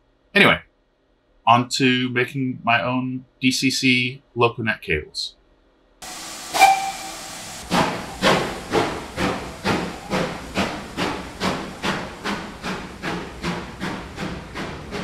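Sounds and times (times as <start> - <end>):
steam hissing: 6.0 - 15.0
steam locomotive chuffing: 6.0 - 15.0.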